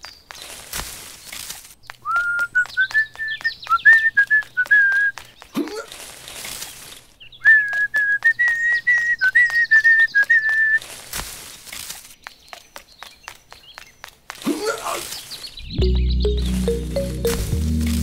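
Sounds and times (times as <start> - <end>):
person whistling a tune: 2.1 - 5.2, 7.4 - 10.8.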